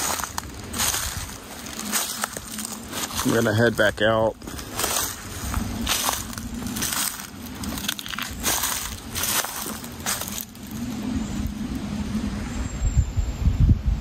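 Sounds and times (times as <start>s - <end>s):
footsteps crunching on twigs: 0.0s - 11.8s.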